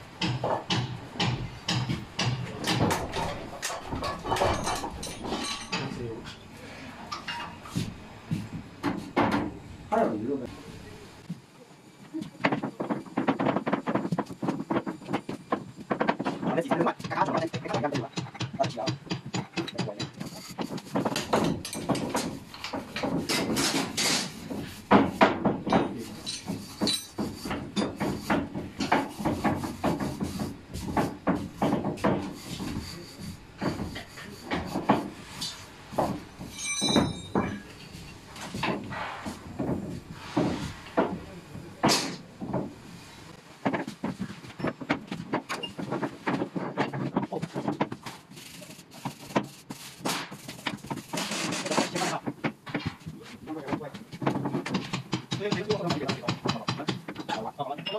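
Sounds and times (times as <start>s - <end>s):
metal clanks and scrapes of tools: 0.2s - 7.9s, 16.1s - 41.2s, 54.3s - 57.9s.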